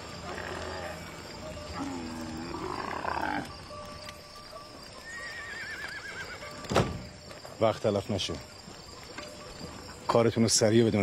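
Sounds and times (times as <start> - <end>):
low groaning animal call: 0.1 - 3.8
horse whinnying: 5.0 - 6.6.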